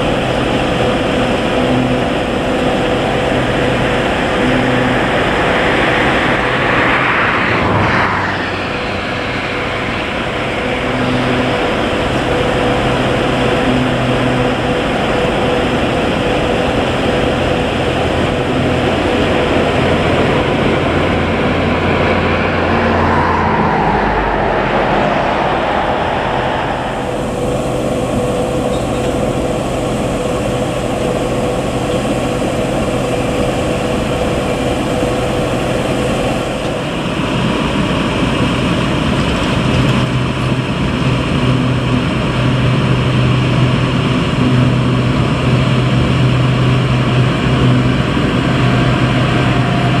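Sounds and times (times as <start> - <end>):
strong low hum: 0.0 - 39.1
machinery engines droning: 0.0 - 50.0
railway locomotive: 0.0 - 50.0.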